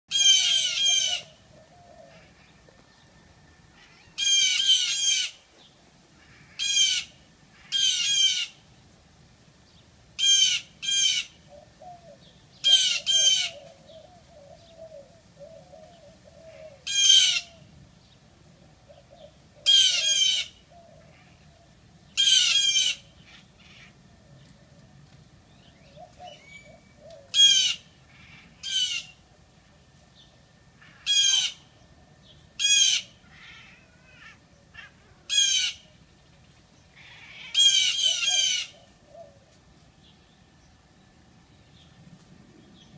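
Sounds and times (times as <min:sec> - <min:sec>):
blue jays harsh scolding calls: 0:00.1 - 0:01.3, 0:03.8 - 0:05.4, 0:06.2 - 0:08.6, 0:10.2 - 0:11.4, 0:12.6 - 0:13.6, 0:19.7 - 0:21.4, 0:22.2 - 0:24.0, 0:27.3 - 0:29.2, 0:30.8 - 0:31.6, 0:32.6 - 0:35.9, 0:36.9 - 0:38.8.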